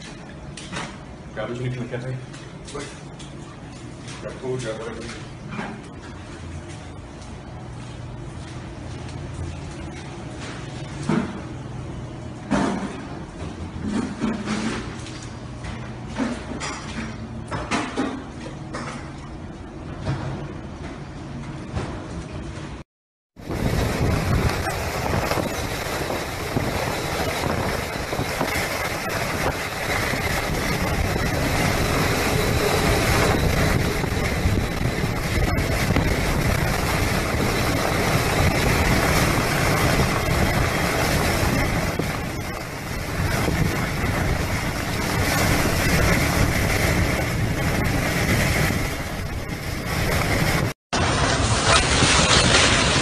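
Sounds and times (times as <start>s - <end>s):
wind and rain on microphone: 23.4s - 53.0s.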